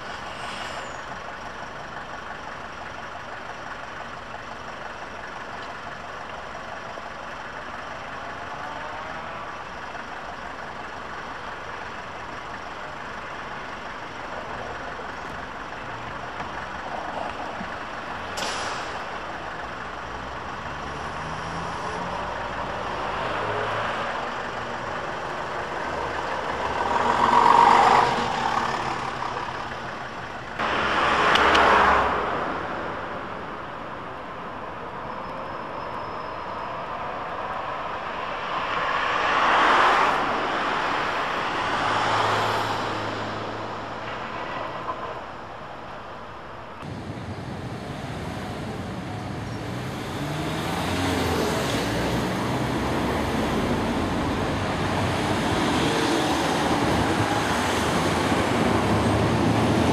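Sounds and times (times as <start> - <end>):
bus pulling away: 0.0 - 38.1, 46.8 - 59.9
vehicles passing: 0.0 - 59.9
trams approaching: 46.8 - 59.9.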